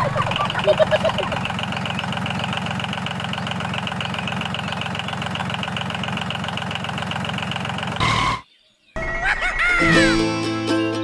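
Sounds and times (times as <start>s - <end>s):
diesel tractor engine chugging: 0.0s - 8.4s.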